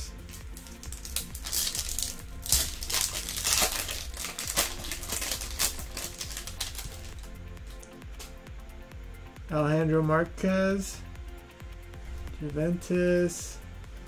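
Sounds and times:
foil wrapper crinkling: 0.4 - 7.9.

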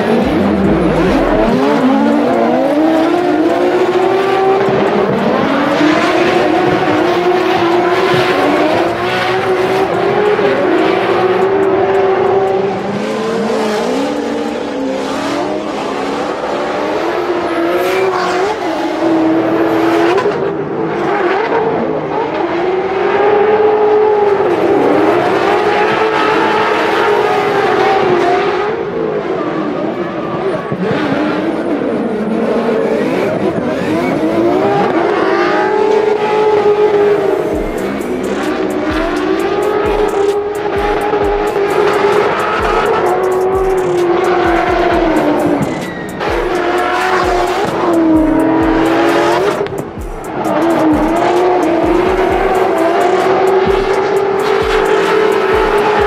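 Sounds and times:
car engines revving: 0.0 - 56.0
tyres squealing: 44.7 - 49.2.

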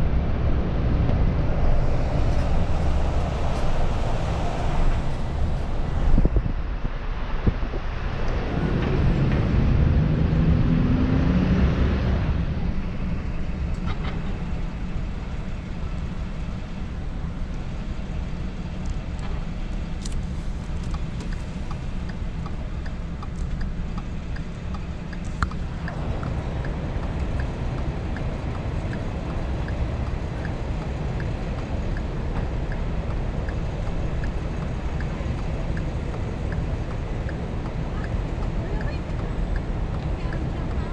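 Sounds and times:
car engine from inside cabin: 0.0 - 6.5, 14.5 - 40.9
faint regular ticking: 18.8 - 40.9.

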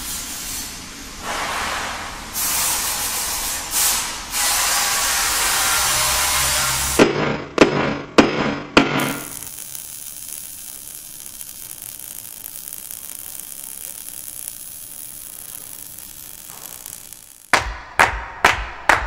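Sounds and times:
steady hiss: 9.0 - 17.6.

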